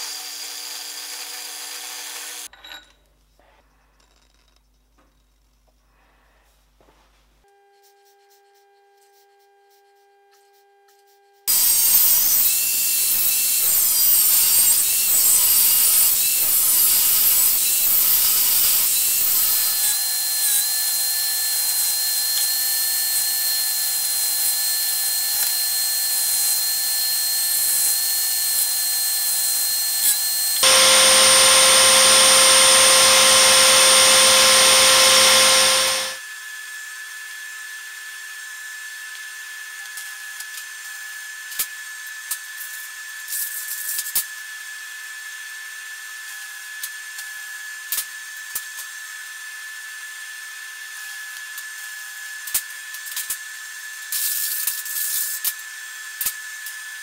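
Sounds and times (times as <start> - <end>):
angle grinder cutting steel: 11.5 - 36.2
belt sander whining: 30.4 - 36.2
loud machine running: 30.6 - 36.2.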